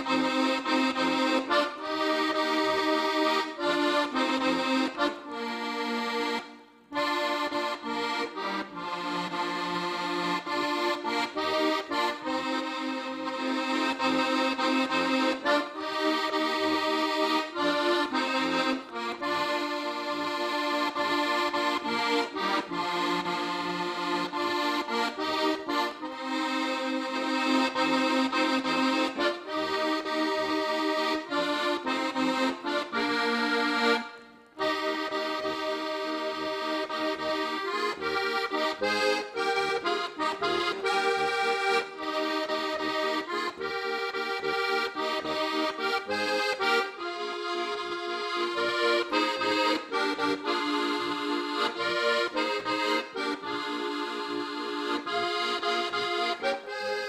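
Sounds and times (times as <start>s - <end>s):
button accordion playing a tune: 0.0s - 57.0s.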